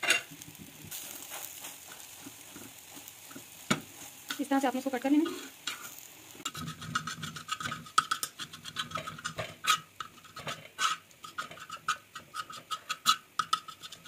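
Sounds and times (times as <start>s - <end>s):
utensil chopping on a pan: 11.3s - 14.0s.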